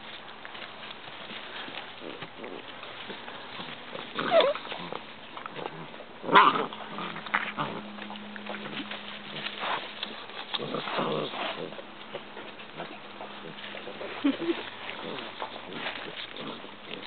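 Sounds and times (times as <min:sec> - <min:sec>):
scuffling in dry leaves: 0:00.0 - 0:17.0
puppy yaps: 0:04.2 - 0:04.6.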